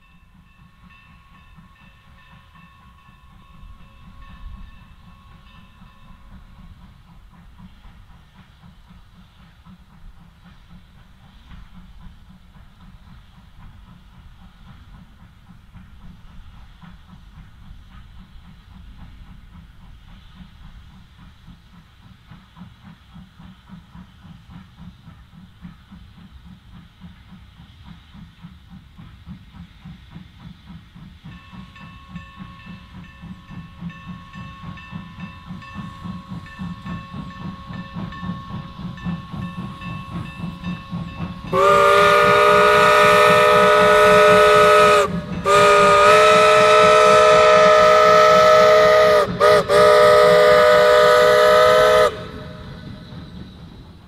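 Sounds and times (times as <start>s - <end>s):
steam locomotive chuffing: 0.0s - 54.0s
locomotive chord whistle: 34.2s - 53.4s.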